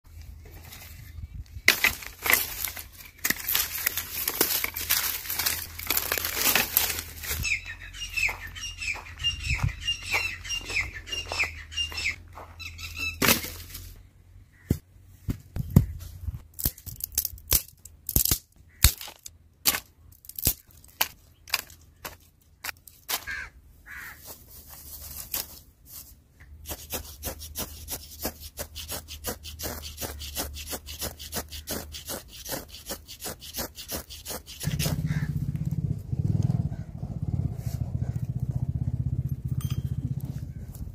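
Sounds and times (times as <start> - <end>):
dry twigs snapping: 1.7 - 7.4
dry leaves crackling: 1.7 - 7.6, 22.9 - 26.1
bird chirping: 7.4 - 13.2
ferro rod scraping: 26.6 - 35.3.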